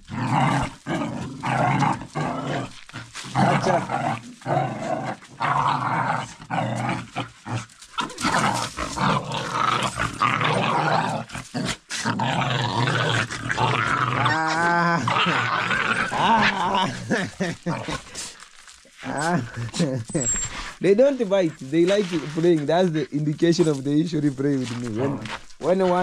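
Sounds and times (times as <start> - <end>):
dogs growling and snarling: 0.0 - 26.0
dog whining: 20.1 - 20.6.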